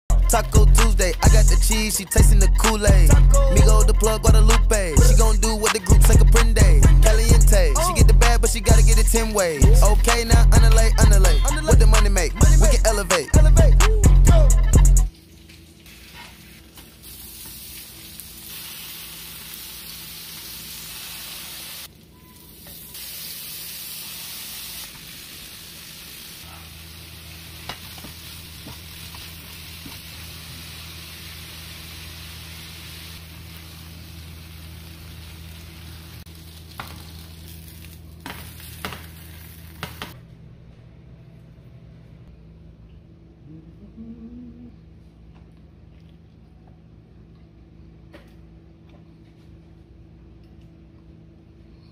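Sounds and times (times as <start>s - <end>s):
meat sizzling in a skillet: 17.0s - 21.9s, 23.0s - 39.8s.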